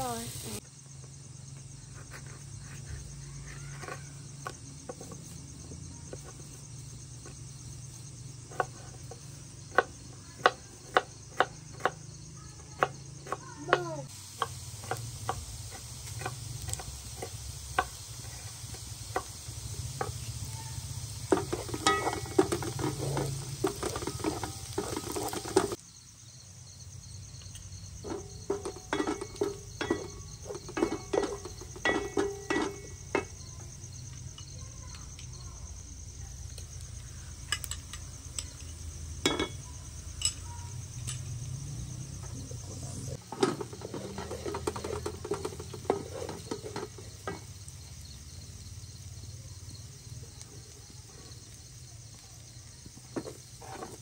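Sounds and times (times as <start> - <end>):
onions sizzling in a frying pan: 0.0 - 54.0
wooden spatula scraping a pan: 1.9 - 11.1, 12.8 - 25.8, 28.0 - 33.8, 43.1 - 47.7, 53.1 - 54.0.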